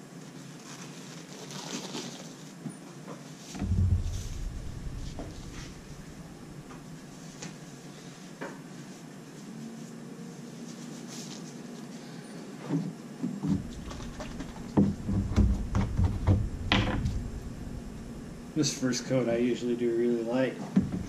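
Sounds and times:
knocks bumps and rubbing: 3.6s - 7.0s, 13.5s - 18.6s.

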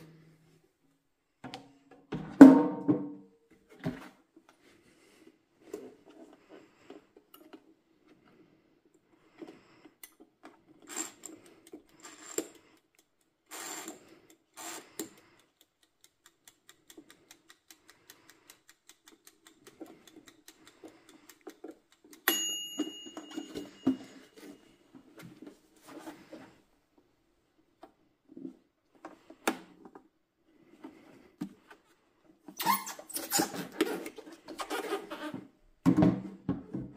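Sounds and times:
fast light ticks: 14.2s - 22.3s
sharp clink: 22.3s - 23.9s.

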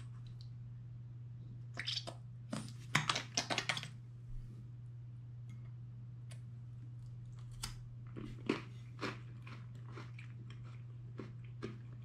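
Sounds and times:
steady low hum: 0.0s - 12.0s
chewing wafer crunches: 7.3s - 12.0s.

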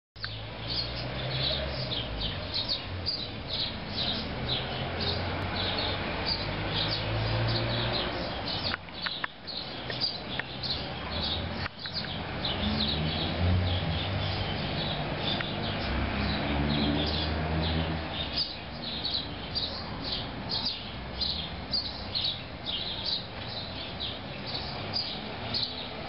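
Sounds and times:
small birds chirping: 0.2s - 26.0s.

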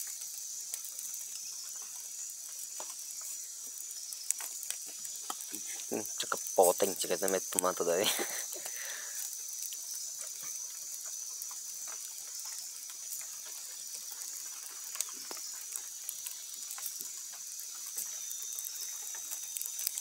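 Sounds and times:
steady high hiss: 0.0s - 20.0s
wood fire crackling: 0.0s - 20.0s.

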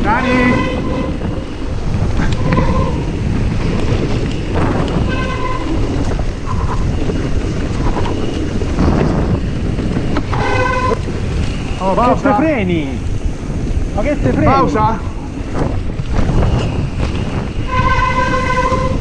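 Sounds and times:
high-pitched squeals: 0.0s - 3.4s, 5.0s - 8.4s, 10.2s - 12.0s, 16.4s - 19.0s
bike rattling on rough trail: 0.0s - 19.0s
wind on microphone: 0.0s - 19.0s.

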